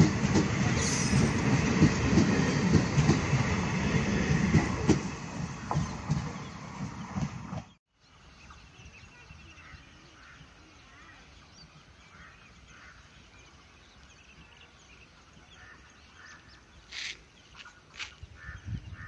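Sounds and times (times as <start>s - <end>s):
birds calling: 5.6s - 19.0s.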